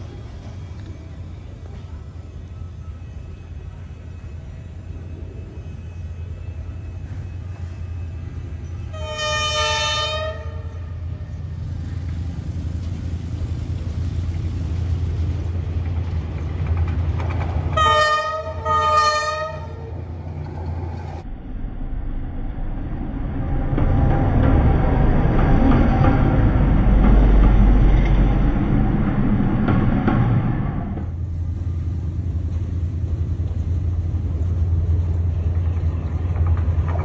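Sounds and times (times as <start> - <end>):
diesel locomotive engine rumble: 0.0 - 37.0
locomotive horn blasts: 8.9 - 11.0, 17.8 - 19.9.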